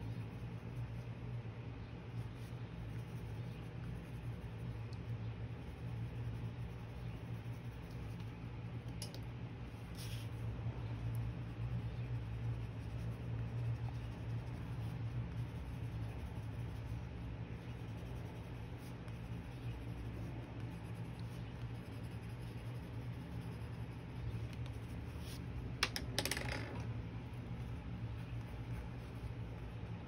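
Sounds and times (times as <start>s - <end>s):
steady low hum: 0.0s - 30.0s
pencil scratching on paper: 2.3s - 8.3s, 9.8s - 10.4s, 11.2s - 25.4s.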